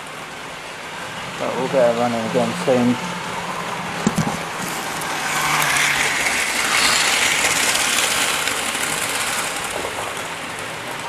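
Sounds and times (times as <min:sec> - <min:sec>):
model train rattling on rails: 0:04.1 - 0:11.0.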